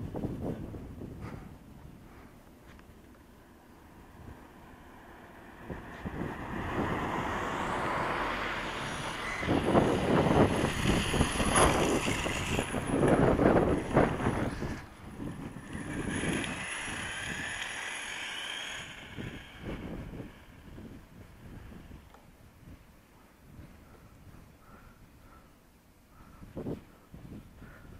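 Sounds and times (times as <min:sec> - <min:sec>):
electric motor whining: 0:05.6 - 0:22.0.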